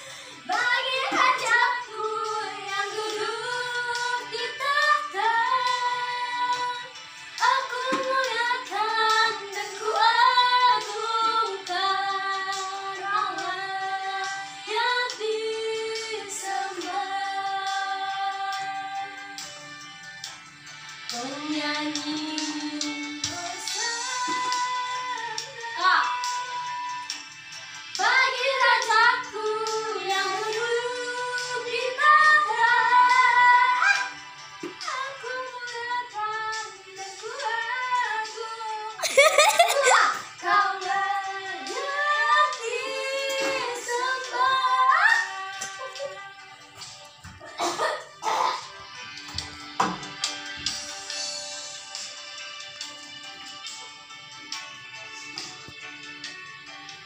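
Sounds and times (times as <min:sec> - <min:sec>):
woman singing: 0:00.0 - 0:19.5, 0:21.1 - 0:27.0, 0:28.0 - 0:47.9.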